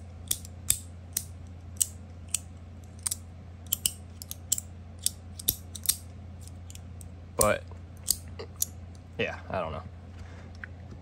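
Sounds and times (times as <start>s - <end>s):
metal fidget toy clicking: 0.2s - 6.0s.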